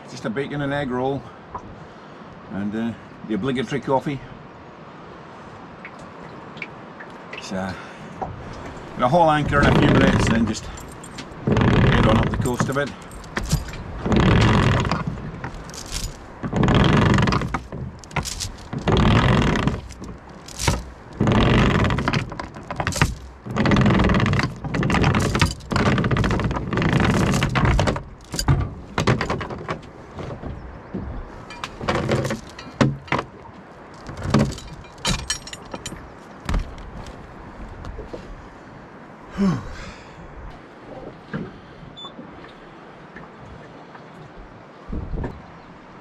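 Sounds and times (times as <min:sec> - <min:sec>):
anchor line rasping over bow: 0:08.3 - 0:38.9
anchor chain clinking: 0:08.7 - 0:30.3, 0:31.3 - 0:37.3.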